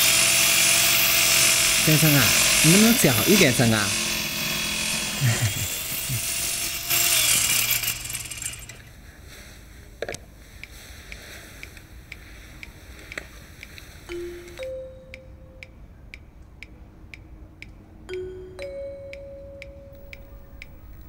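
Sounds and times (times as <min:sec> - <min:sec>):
angle grinder cutting metal: 0:00.0 - 0:08.9.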